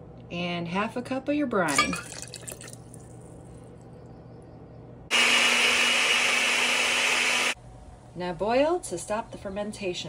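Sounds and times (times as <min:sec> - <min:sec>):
blender whirring: 0:05.1 - 0:07.6.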